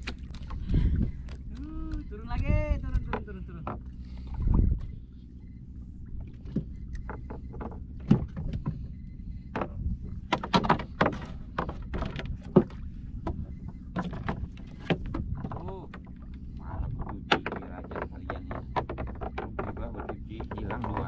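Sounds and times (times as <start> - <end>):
boat low hum: 0.0 - 21.0
fishing tackle clicks and knocks: 9.5 - 21.0.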